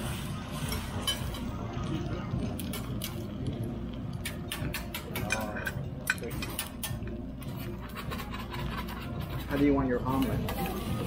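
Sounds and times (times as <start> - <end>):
metal spatula scraping griddle: 6.3 - 11.0.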